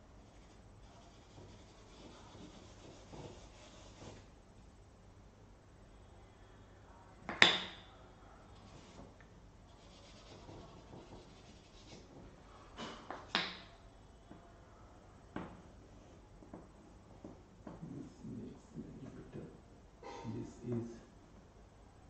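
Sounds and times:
chalk scraping on blackboard: 0.2 - 4.3, 8.6 - 12.2
chalk tapping on blackboard: 0.3 - 4.3, 9.8 - 12.2.

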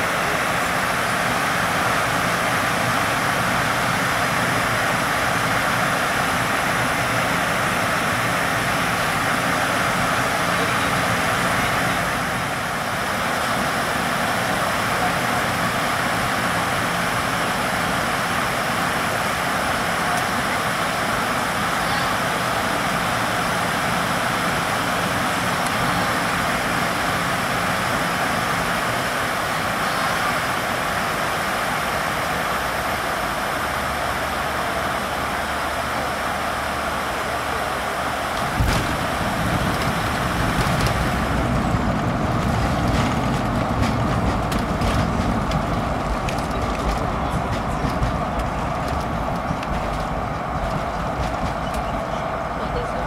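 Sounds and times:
jet engines in cabin: 0.0 - 53.0
rushing airflow: 35.1 - 52.6
deep low rumble: 38.4 - 52.4.

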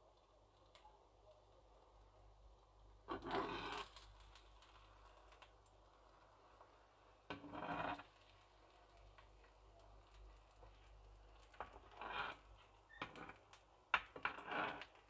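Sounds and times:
metal spatula scraping a frying pan: 3.1 - 4.0, 7.3 - 8.3, 11.6 - 13.4, 14.2 - 15.0.

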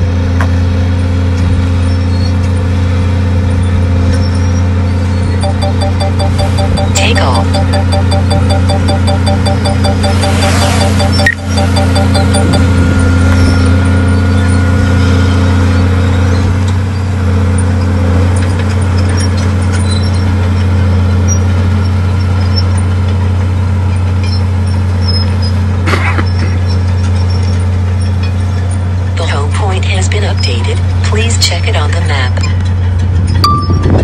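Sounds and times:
diesel engine droning: 0.0 - 34.0
short high-pitched noise: 5.4 - 13.7.

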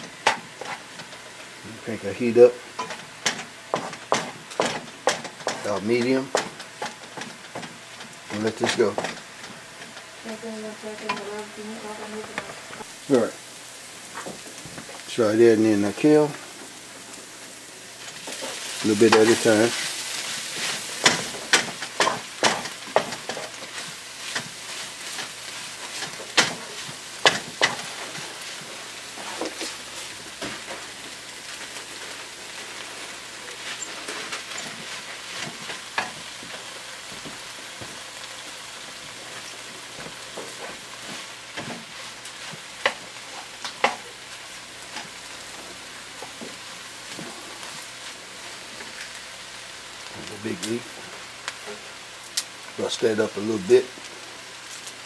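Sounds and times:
vegetables sizzling in pan: 0.0 - 55.0
wooden spatula scraping pan: 18.0 - 32.1.

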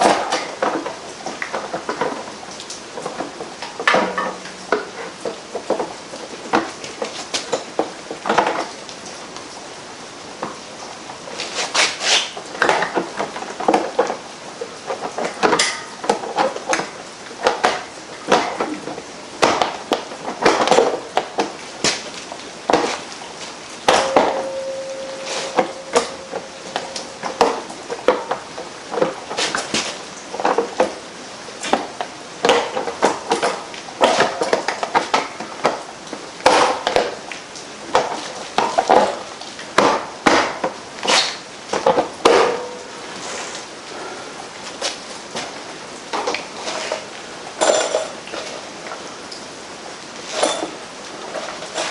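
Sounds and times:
metal tools clinking: 23.9 - 27.7
steady tone: 23.9 - 27.8.

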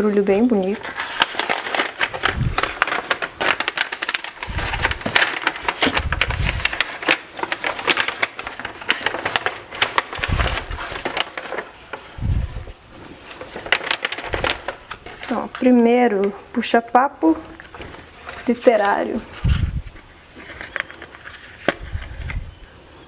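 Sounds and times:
paper wrapping crinkling: 0.0 - 22.6.

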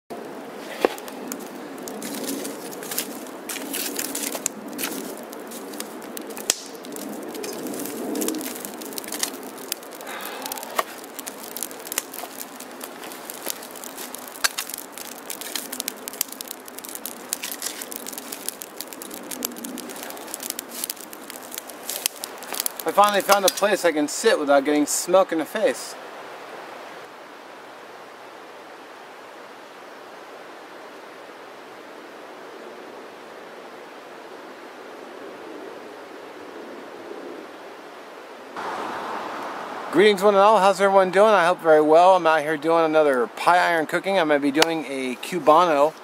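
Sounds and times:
campfire crackling and popping: 0.1 - 25.9, 38.6 - 46.0.

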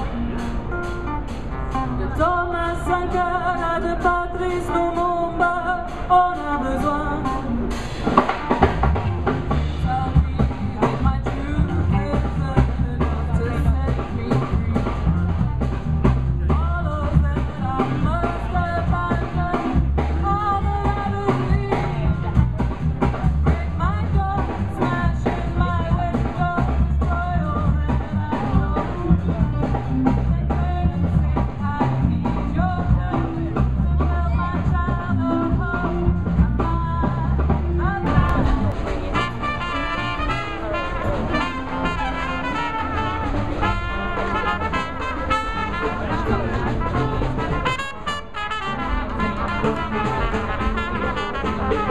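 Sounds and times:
acoustic and electric guitars: 0.0 - 51.9
bass guitar: 0.0 - 51.9
drum kit: 0.0 - 51.9
woman singing: 2.0 - 7.6, 9.5 - 15.3, 16.5 - 22.7, 23.4 - 38.8.

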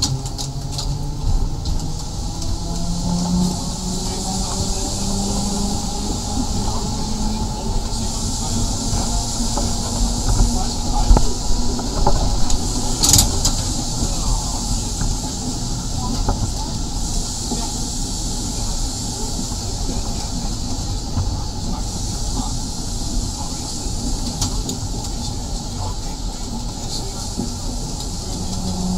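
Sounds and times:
tram wheels rumbling on rails: 0.0 - 28.9.

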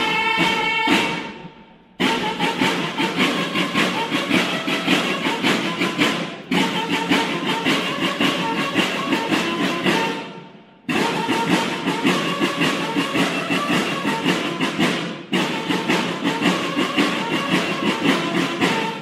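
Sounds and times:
bugle notes: 0.0 - 19.0
snare drums beating: 0.0 - 19.0.

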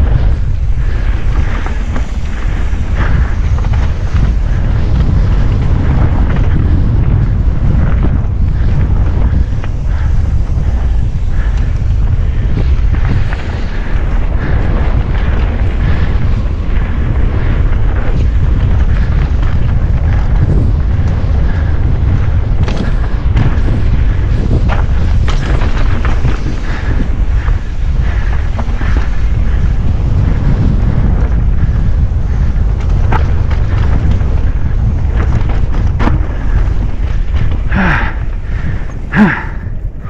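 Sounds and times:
bike clattering over rough ground: 0.0 - 40.0
wind buffeting microphone: 0.0 - 40.0.

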